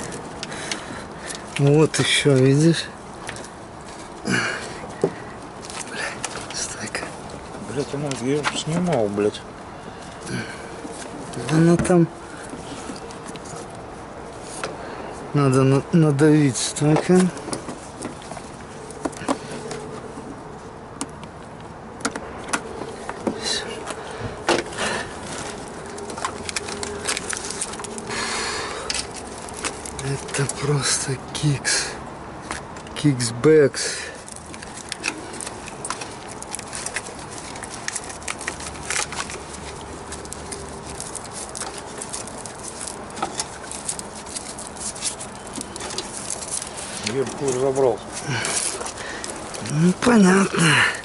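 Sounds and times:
wiring harness clicks and crackles: 0.0s - 9.4s, 21.0s - 33.2s, 34.0s - 51.0s
rustling: 22.6s - 31.7s, 34.0s - 51.0s.

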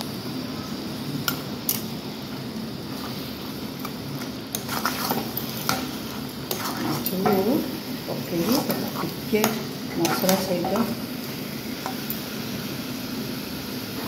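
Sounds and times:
gravy sizzling in a pan: 0.0s - 14.0s
utensil clinking against pan: 4.6s - 7.6s.

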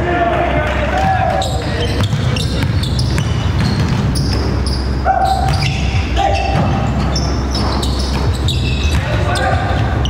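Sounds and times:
sneaker squeaks: 1.3s - 10.0s
basketball bouncing on hardwood: 2.0s - 4.5s.

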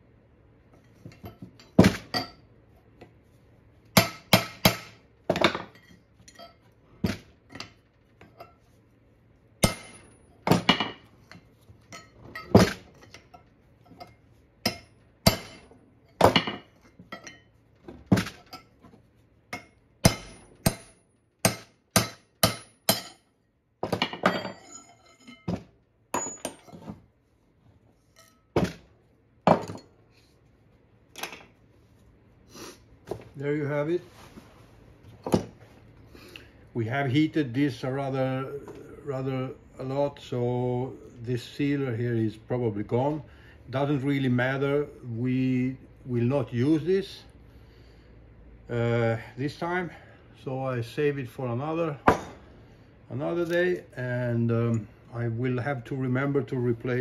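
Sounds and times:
hammer striking metal chisel: 4.0s - 7.8s, 9.6s - 11.0s, 11.9s - 17.4s, 19.5s - 26.8s.

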